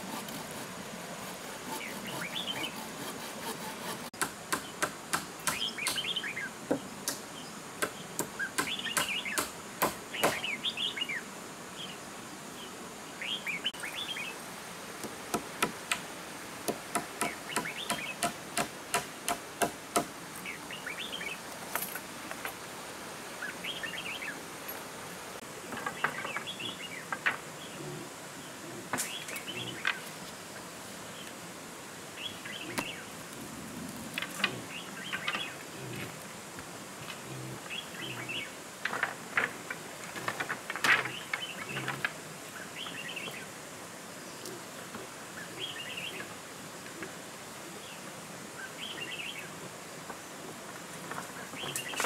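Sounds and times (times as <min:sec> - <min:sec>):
birds chirping: 0:01.6 - 0:02.9, 0:03.8 - 0:09.5, 0:10.1 - 0:14.5, 0:16.9 - 0:18.4, 0:19.9 - 0:21.5, 0:23.3 - 0:24.8, 0:25.6 - 0:30.1, 0:32.2 - 0:33.2, 0:34.2 - 0:36.2, 0:37.0 - 0:38.6, 0:41.0 - 0:43.5, 0:51.2 - 0:52.0.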